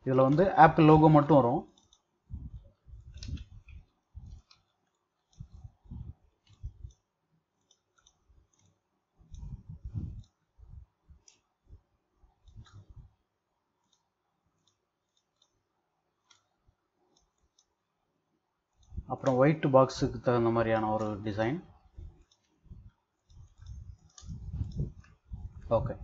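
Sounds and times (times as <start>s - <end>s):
computer mouse clicking: 0.2s - 10.4s, 11.2s - 11.5s, 12.3s - 13.2s, 13.8s - 15.6s, 16.2s - 17.8s, 18.7s - 25.8s
dull low thumps: 2.3s - 4.4s, 5.4s - 6.9s, 9.3s - 10.9s, 23.6s - 26.0s.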